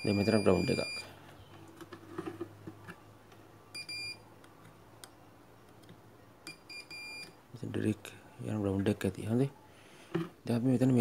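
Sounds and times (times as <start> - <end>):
multimeter continuity beeps: 0.0 - 1.2, 3.7 - 4.2, 6.5 - 7.4.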